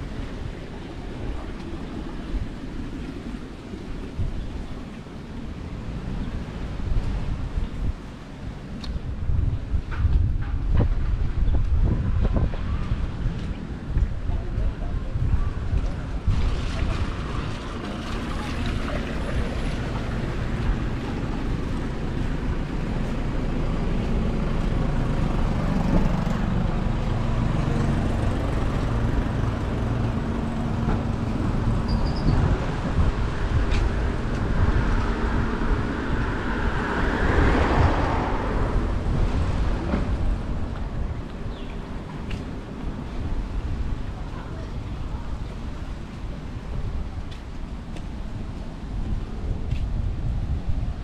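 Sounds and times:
low engine hum of traffic: 0.0s - 51.0s
vehicle passing close by: 16.3s - 41.2s.

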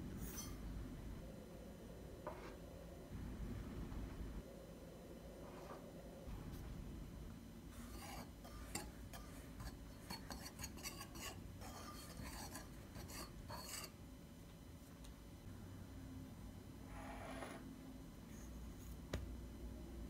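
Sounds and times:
whisk scratching in glass bowl: 7.8s - 14.0s.

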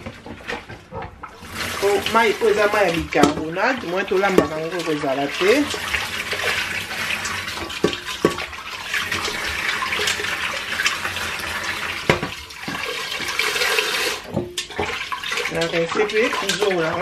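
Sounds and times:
tap water running into a pot: 0.0s - 17.0s
water splashing into a steel sink: 0.0s - 17.0s
pot knocking: 1.8s - 5.8s, 7.5s - 8.5s, 12.0s - 13.4s, 14.2s - 15.0s.

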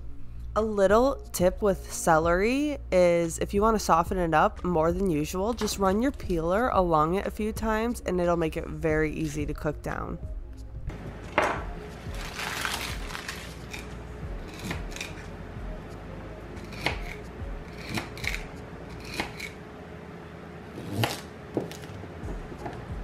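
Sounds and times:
paper towel crumpling: 12.0s - 13.8s
knife chopping on wooden board: 17.8s - 19.5s, 20.8s - 22.8s.

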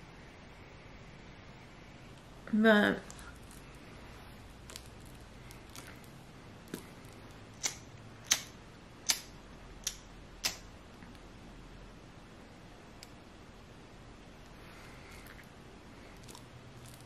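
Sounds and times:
small sharp clicks: 7.6s - 11.2s.

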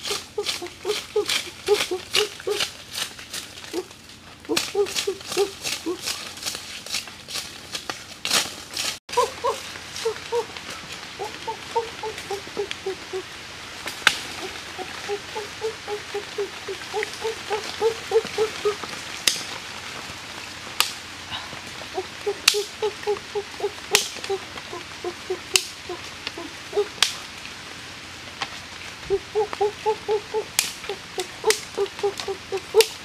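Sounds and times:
pulsing animal call: 0.0s - 2.7s, 4.5s - 6.2s, 9.1s - 10.6s, 11.2s - 13.3s, 14.3s - 18.8s, 21.3s - 27.0s, 29.1s - 33.0s.

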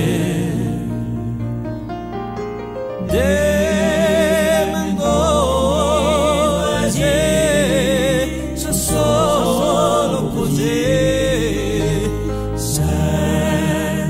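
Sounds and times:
slow song with vibrato: 0.0s - 14.0s
low bass: 2.9s - 14.0s.

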